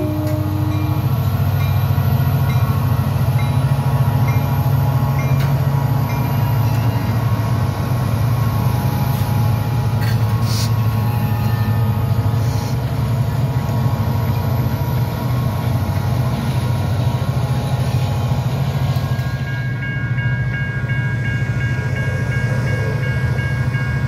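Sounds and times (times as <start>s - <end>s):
train horn: 0.0s - 1.3s
crossing bell dinging: 0.0s - 12.4s, 18.6s - 24.0s
diesel locomotives rumbling: 0.0s - 24.0s.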